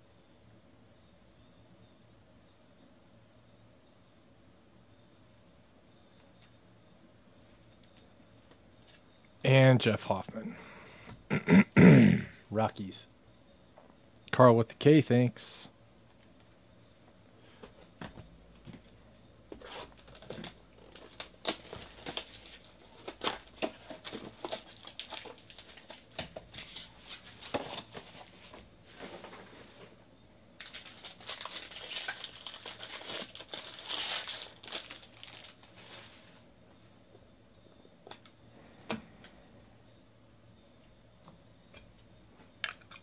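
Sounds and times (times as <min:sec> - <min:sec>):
foil wrapper crinkling and tearing: 0:19.6 - 0:28.4, 0:30.6 - 0:36.4.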